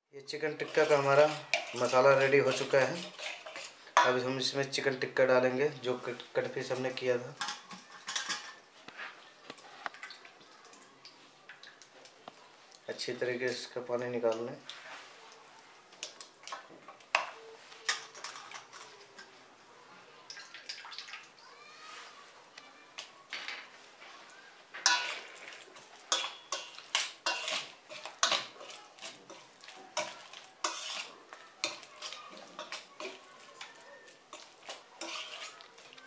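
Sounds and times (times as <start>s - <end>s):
utensil clinking and scraping bowl: 0.4s - 4.3s, 6.6s - 8.7s, 16.0s - 19.4s, 24.8s - 36.0s.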